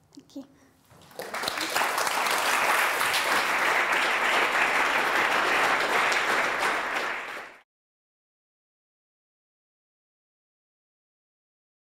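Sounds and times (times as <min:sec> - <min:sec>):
audience applauding: 0:01.0 - 0:07.6.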